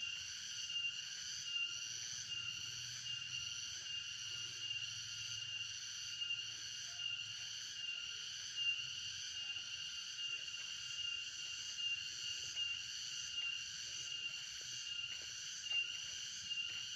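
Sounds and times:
insects chorus with pulsing note: 0:00.0 - 0:16.9.

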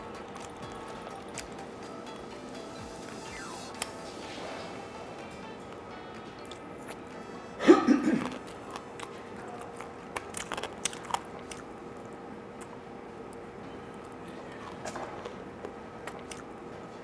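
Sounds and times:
crunchy chewing: 0:00.0 - 0:01.7, 0:08.2 - 0:16.9.

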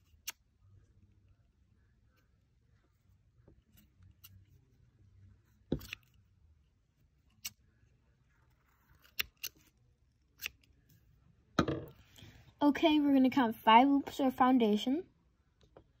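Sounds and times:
scissors snipping yarn: 0:10.4 - 0:10.6.

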